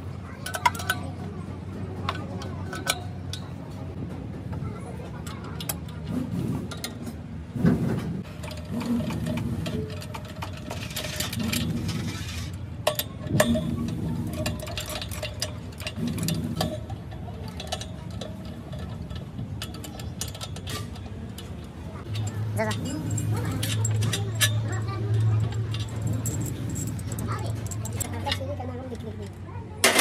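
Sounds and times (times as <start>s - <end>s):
metal tools clinking: 0.3s - 1.2s, 2.0s - 3.8s, 8.2s - 30.0s
ratchet wrench clicking: 8.2s - 28.4s.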